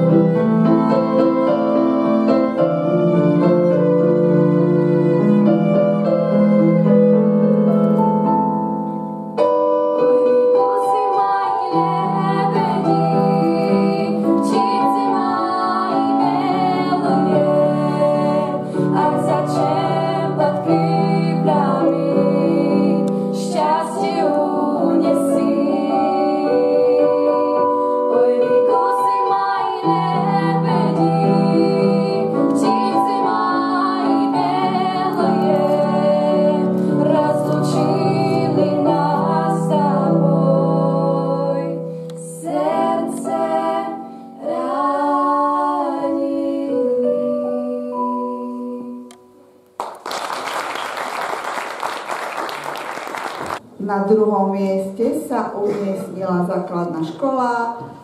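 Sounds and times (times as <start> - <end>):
keyboard: 0.0 - 49.7
girl singing: 10.6 - 49.1.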